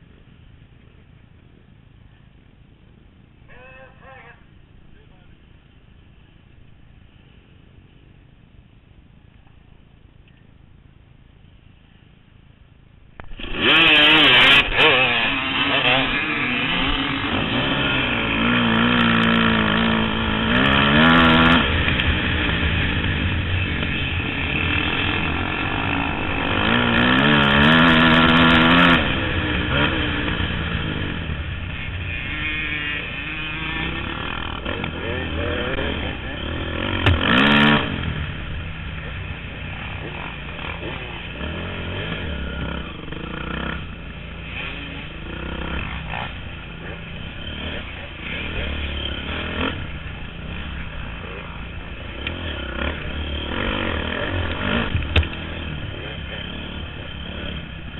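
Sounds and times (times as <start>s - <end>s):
dirt bike engines at full throttle: 0.0s - 57.9s
dirt bike engine revving through gears: 13.2s - 57.9s.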